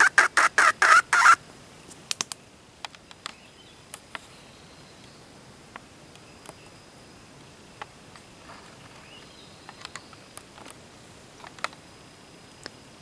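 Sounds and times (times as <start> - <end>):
high-pitched insect drone: 0.0 - 1.4
rising bird chirp: 0.0 - 1.4.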